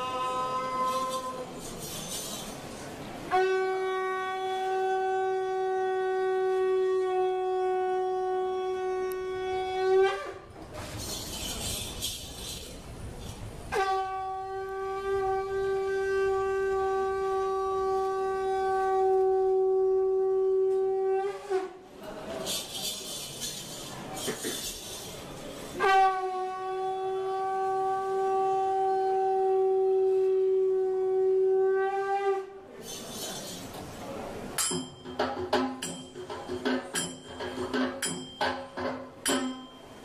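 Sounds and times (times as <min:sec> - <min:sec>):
horn blasts: 0:03.2 - 0:10.9, 0:13.7 - 0:21.8, 0:25.6 - 0:32.6.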